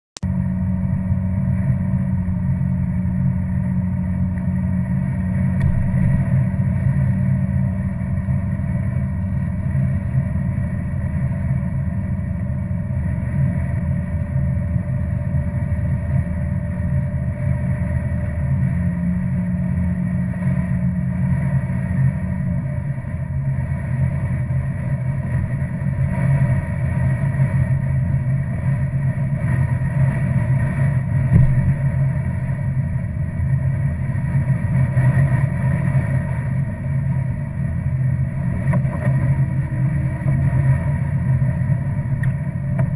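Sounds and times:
car engine and road rumble: 0:00.2 - 0:42.9.

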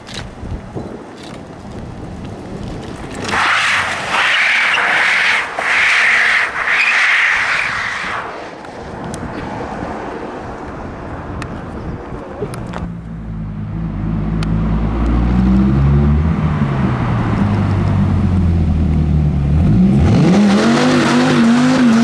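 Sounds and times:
car tyres squealing: 0:03.2 - 0:08.6.

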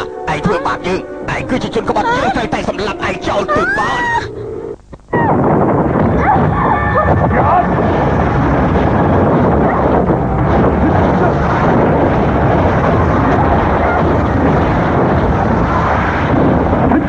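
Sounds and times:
loud rushing rumbling noise: 0:05.2 - 0:17.0.

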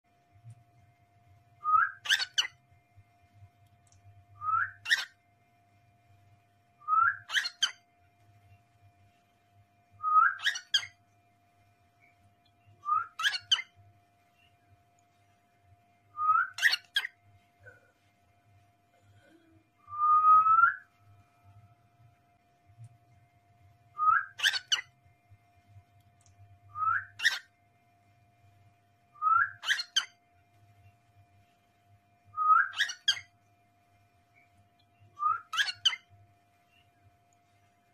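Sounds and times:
cockatiel whistling and chirping: 0:01.6 - 0:02.6, 0:04.4 - 0:05.2, 0:06.9 - 0:07.8, 0:10.0 - 0:11.0, 0:12.8 - 0:13.7, 0:16.2 - 0:17.1, 0:24.0 - 0:24.9, 0:26.8 - 0:27.5, 0:29.2 - 0:30.2, 0:32.4 - 0:33.3, 0:35.2 - 0:36.1.

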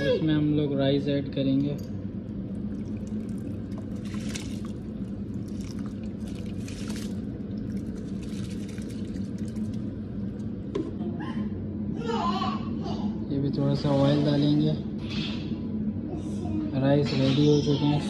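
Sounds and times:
low hum: 0:00.0 - 0:16.7
boiling water bubbling: 0:02.1 - 0:11.0
rice and water pouring into pot: 0:02.6 - 0:10.4.

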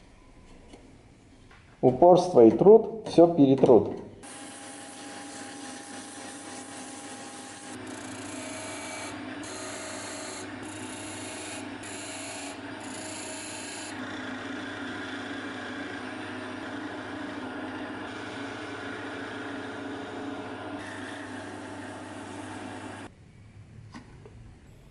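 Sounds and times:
wood lathe humming: 0:04.2 - 0:23.1.

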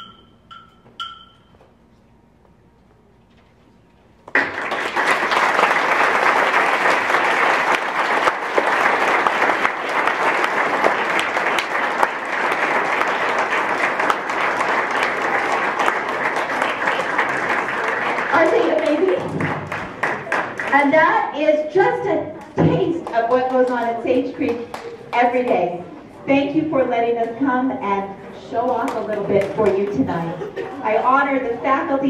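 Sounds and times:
audience applauding: 0:04.3 - 0:20.9.

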